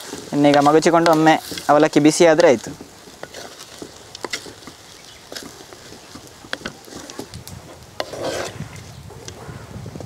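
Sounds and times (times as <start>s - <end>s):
spatula scraping pot: 0.0s - 9.4s
spatula stirring in pot: 0.0s - 9.4s
spatula tapping pot: 0.4s - 1.7s, 2.3s - 7.3s.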